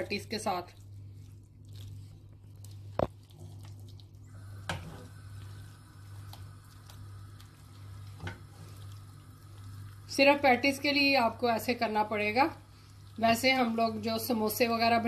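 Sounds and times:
thick filling squelching: 0:00.0 - 0:10.2.

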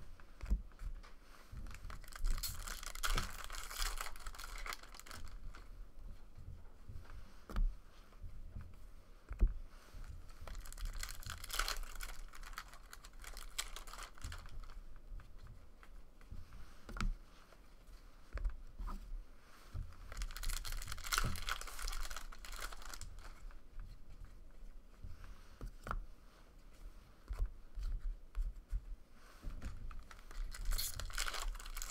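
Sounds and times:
cards rustling and crinkling: 0:01.5 - 0:05.7, 0:10.3 - 0:14.9, 0:20.1 - 0:24.0, 0:29.6 - 0:31.9.

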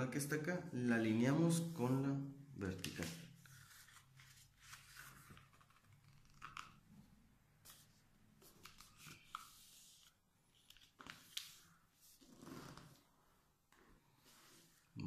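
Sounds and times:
paper being folded: 0:02.9 - 0:06.8, 0:07.7 - 0:13.0.

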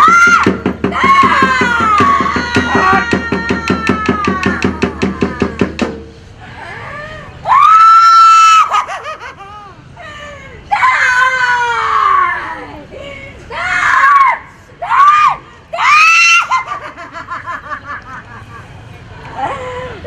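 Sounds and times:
person screaming and wailing: 0:01.0 - 0:05.8.

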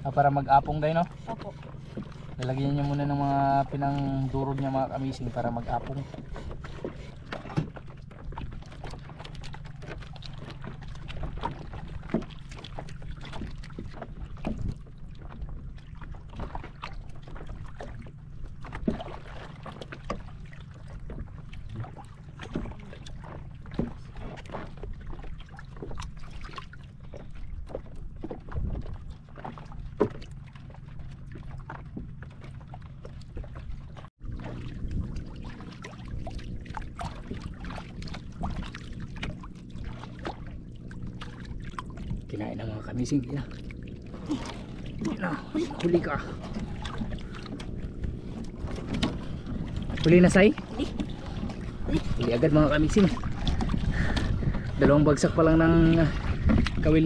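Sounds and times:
steady low hum: 0:00.0 - 0:57.0
water lapping against boat hull: 0:00.0 - 0:57.0
sharp knocks on boat: 0:06.1 - 0:15.7, 0:16.3 - 0:26.2, 0:56.2 - 0:56.8.

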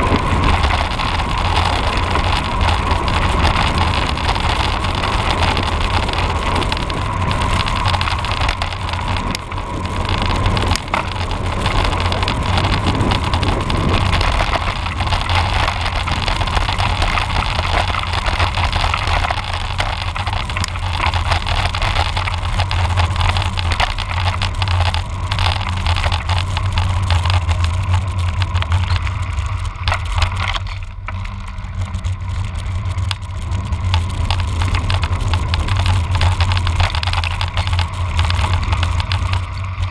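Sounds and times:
bike tyre noise: 0:00.0 - 0:39.9
low road rumble: 0:00.0 - 0:39.9
wind noise: 0:00.0 - 0:39.9.

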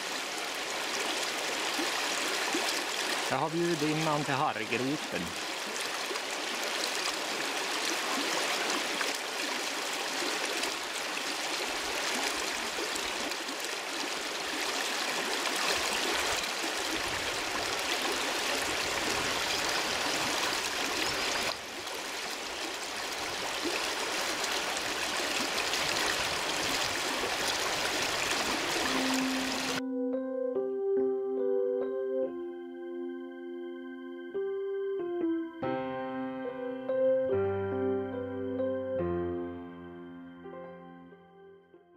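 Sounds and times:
river rushing over stones: 0:00.0 - 0:29.8
keyboard music: 0:03.3 - 0:05.3, 0:28.8 - 0:41.9.

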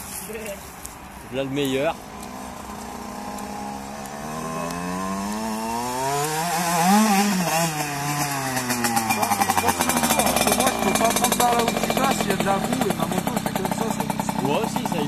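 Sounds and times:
dirt bike engine revving: 0:01.9 - 0:15.0
engine popping: 0:01.9 - 0:15.0.

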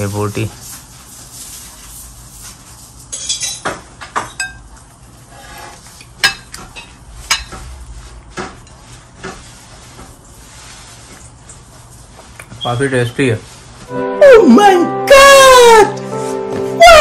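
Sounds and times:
spoon clinking on ceramic plates: 0:03.1 - 0:03.6, 0:04.2 - 0:04.6.

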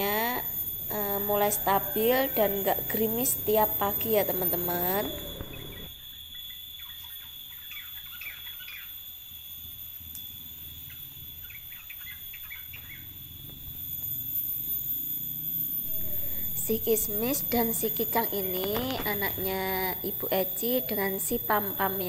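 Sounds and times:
faint steady hum: 0:00.0 - 0:22.0
small birds twittering: 0:00.5 - 0:09.0, 0:10.8 - 0:13.3.

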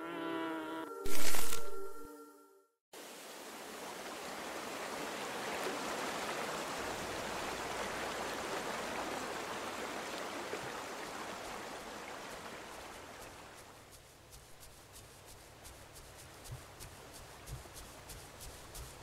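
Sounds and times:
stream rushing and babbling: 0:03.0 - 0:13.8.

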